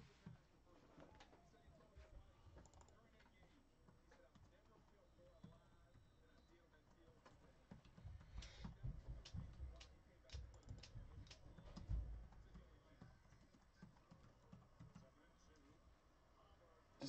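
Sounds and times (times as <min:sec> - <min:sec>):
typing on computer keyboard: 0:02.6 - 0:03.5, 0:06.9 - 0:15.1.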